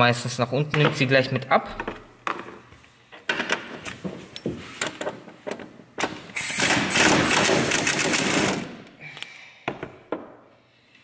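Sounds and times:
pneumatic impact wrench: 6.0 - 8.8.

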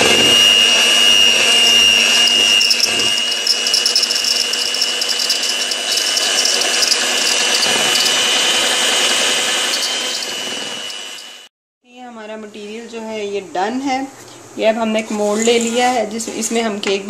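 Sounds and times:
beaters whisking batter: 0.0 - 11.4
electric hand mixer whining: 0.0 - 11.5.

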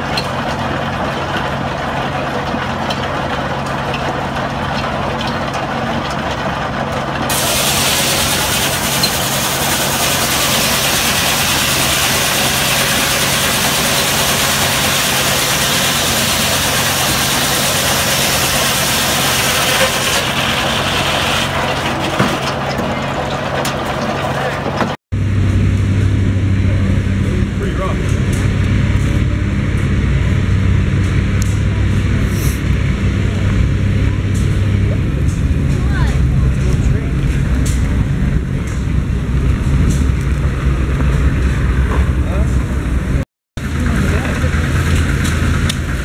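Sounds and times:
circular saw blade cutting log: 7.3 - 22.6.

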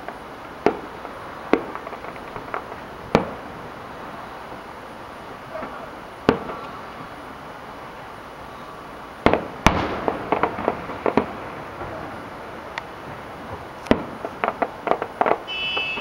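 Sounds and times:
small firework pops: 0.0 - 3.4, 5.6 - 6.8, 9.2 - 16.0
firework shells bursting: 0.0 - 7.2, 9.2 - 16.0.

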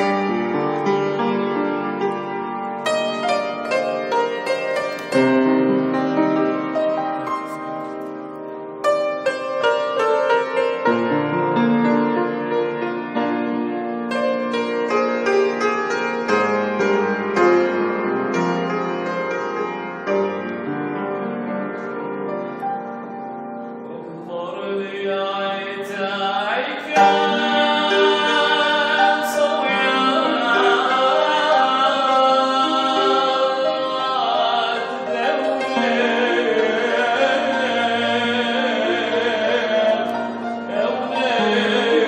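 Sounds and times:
keyboard piano notes: 0.0 - 24.2
man singing a hymn: 23.9 - 42.0.

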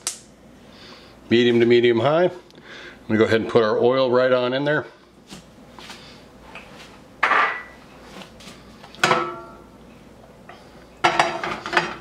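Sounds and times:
kitchenware clinking: 7.2 - 7.8, 9.0 - 9.7, 11.0 - 12.0.

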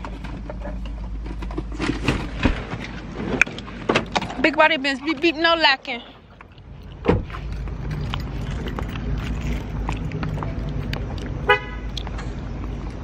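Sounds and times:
car horn chirp: 11.4 - 11.9.

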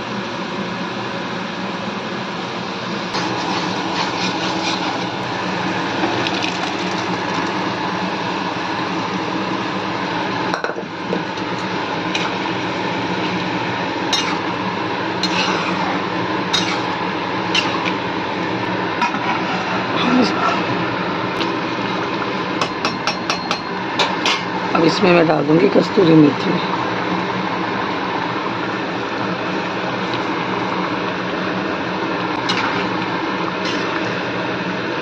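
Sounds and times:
kitchen noise: 3.2 - 7.6, 10.5 - 12.6, 13.2 - 14.6, 15.2 - 18.1, 21.4 - 26.5, 32.2 - 34.3.

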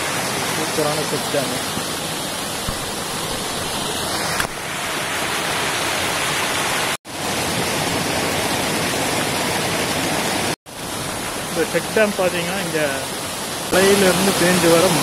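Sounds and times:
water cascading onto rocks: 0.0 - 15.0.

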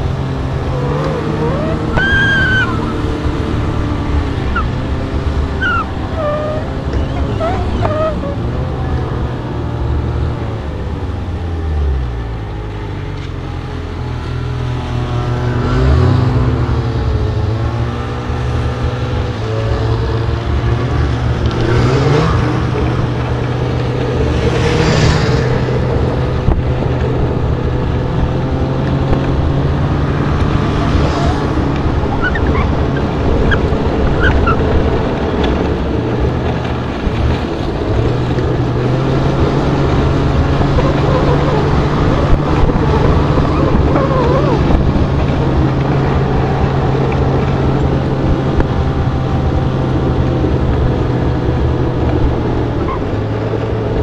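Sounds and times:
snowmobile engine drone: 0.0 - 54.0
wind on microphone: 22.4 - 54.0.

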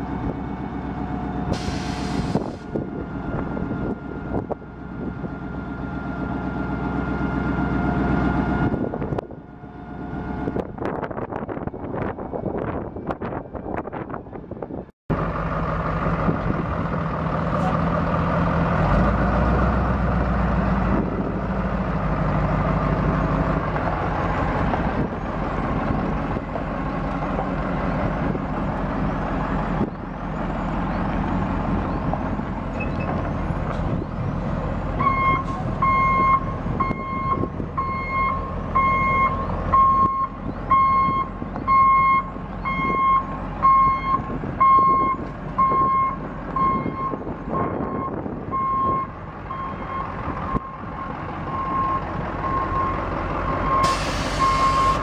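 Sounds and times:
diesel truck engine running: 0.0 - 55.0
reversing alarm beeping: 35.0 - 55.0.

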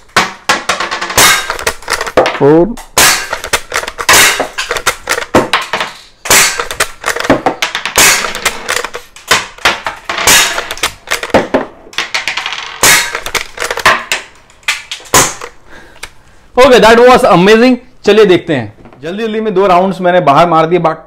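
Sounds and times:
air rifle shots: 1.1 - 2.2, 2.9 - 11.6, 12.8 - 13.8, 14.7 - 15.6.

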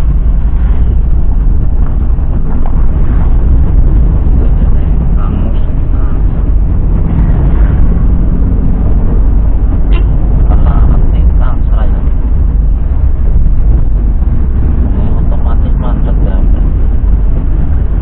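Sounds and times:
car engine and road rumble: 0.0 - 18.0.

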